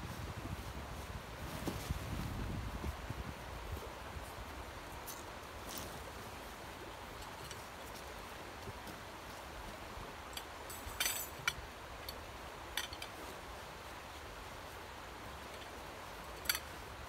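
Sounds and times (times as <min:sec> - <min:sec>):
tent poles clacking: 0:06.9 - 0:08.1, 0:10.2 - 0:13.3, 0:15.4 - 0:17.0.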